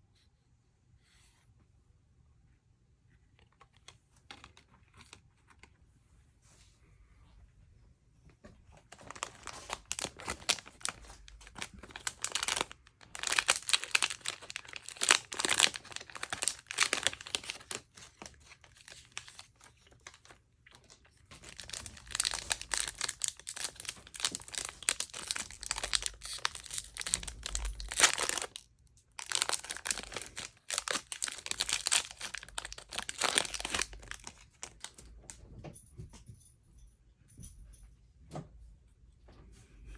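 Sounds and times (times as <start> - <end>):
plastic wrappers crinkling and tearing: 8.8 - 35.0.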